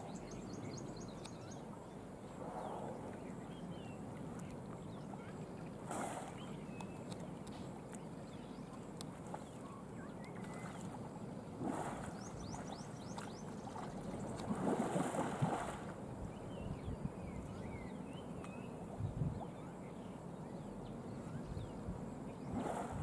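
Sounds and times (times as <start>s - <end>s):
elephants splashing in water: 5.8s - 6.5s, 11.6s - 16.0s.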